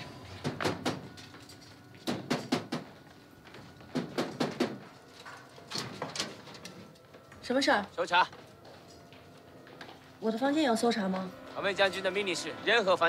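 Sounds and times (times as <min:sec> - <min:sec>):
knocking on a door: 0:02.0 - 0:02.9, 0:03.9 - 0:04.8.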